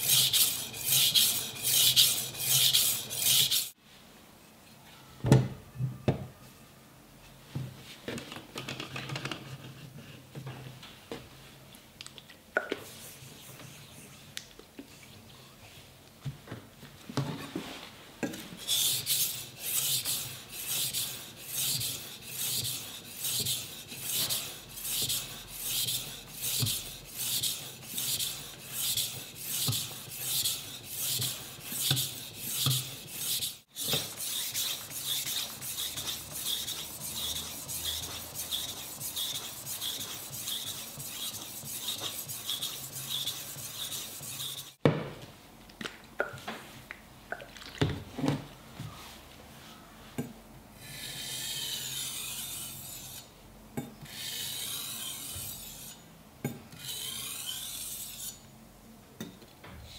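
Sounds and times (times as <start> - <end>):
knife scraping on water stone: 18.6 - 44.8, 56.8 - 58.4.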